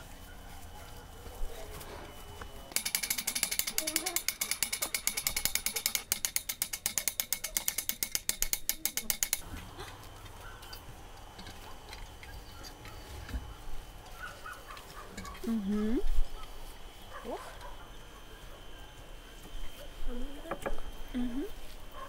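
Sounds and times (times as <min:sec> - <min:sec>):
winch ratchet clicking: 0:02.7 - 0:09.4.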